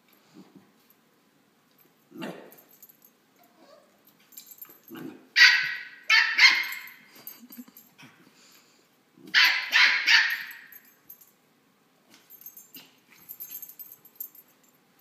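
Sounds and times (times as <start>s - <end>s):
puppy barking high-pitched yaps: 5.4s - 7.0s, 9.3s - 10.7s.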